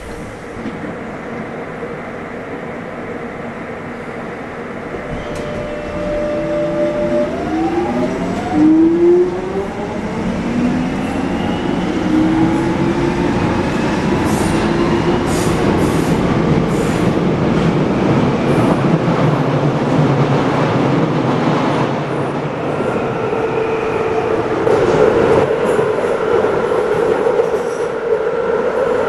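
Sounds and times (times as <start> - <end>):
wheels rumbling on rail: 3.8 - 29.0
rail clicks: 4.9 - 8.7.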